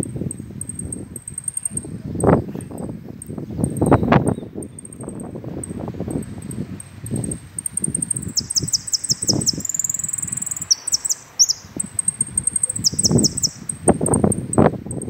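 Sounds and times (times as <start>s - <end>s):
finch singing: 3.6s - 5.3s, 6.8s - 15.0s.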